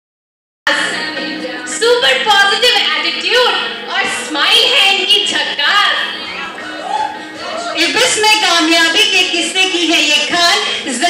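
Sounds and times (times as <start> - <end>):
music over loudspeakers: 0.7 - 11.0
woman speaking into a microphone: 1.7 - 6.2, 7.8 - 11.0.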